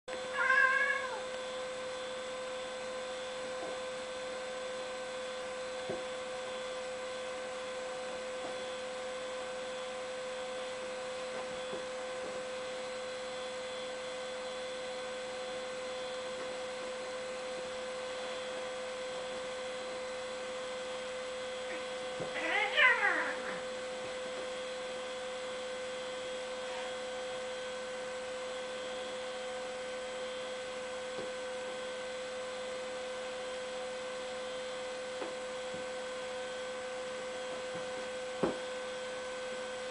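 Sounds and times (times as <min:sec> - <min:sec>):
electrical hum: 0:00.1 - 0:39.9
cat yowl: 0:00.3 - 0:01.3, 0:21.7 - 0:23.7.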